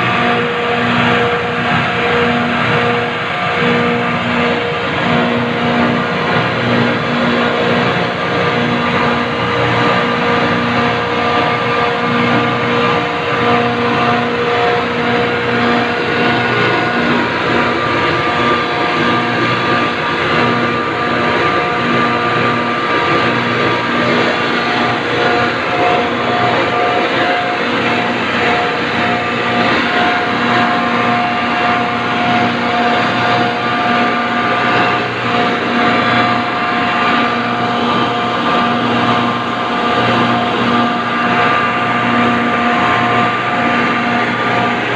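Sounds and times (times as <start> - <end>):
refrigeration compressors droning: 0.0 - 44.9
whining tones: 5.6 - 38.1.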